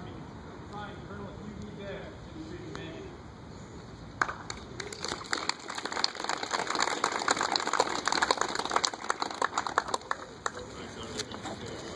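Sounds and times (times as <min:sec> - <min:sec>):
group applauding: 0:04.2 - 0:10.9.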